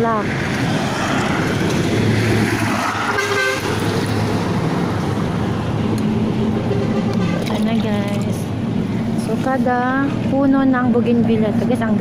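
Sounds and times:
road traffic rumble: 0:00.0 - 0:12.0
car horn toot: 0:03.1 - 0:03.7.

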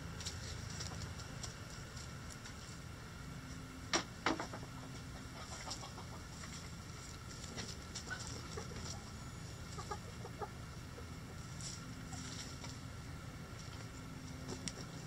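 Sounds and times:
hens clucking: 0:04.3 - 0:13.0.

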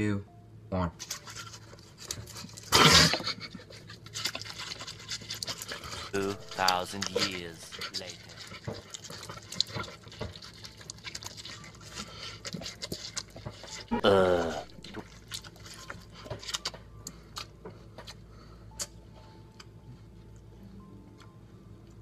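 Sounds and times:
boy slurping watermelon: 0:02.4 - 0:16.8.

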